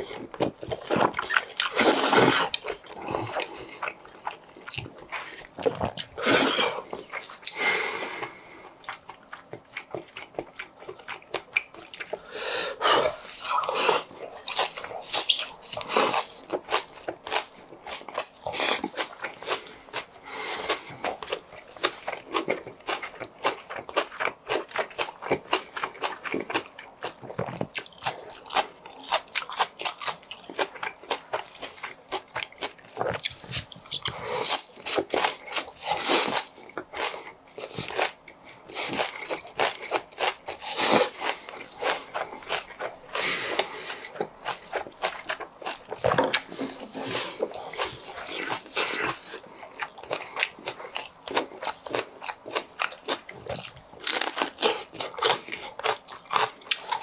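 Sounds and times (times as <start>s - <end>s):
crisp wet crunching while chewing: 0.0s - 57.0s.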